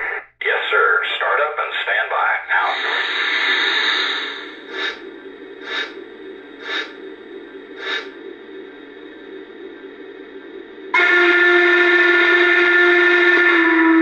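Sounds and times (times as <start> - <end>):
steady hum: 0.0 - 14.0
steam hiss: 2.7 - 11.1
steam chuffs: 2.8 - 9.8.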